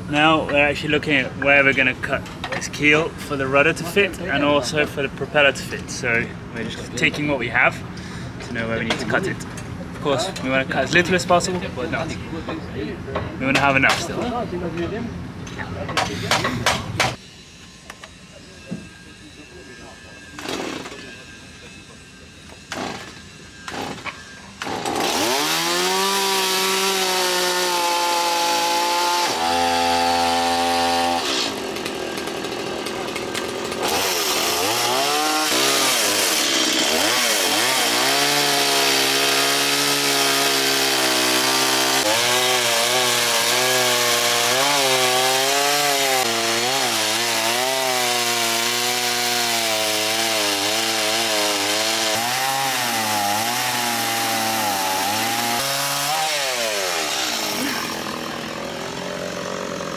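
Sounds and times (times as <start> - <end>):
chainsaw cutting wood: 20.3 - 21.7, 22.4 - 59.9.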